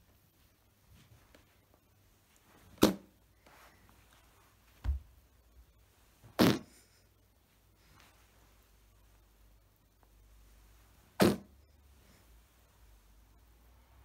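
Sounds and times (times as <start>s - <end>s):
whoopee cushion fart noises: 2.7s - 3.2s, 6.3s - 6.8s, 11.2s - 11.6s.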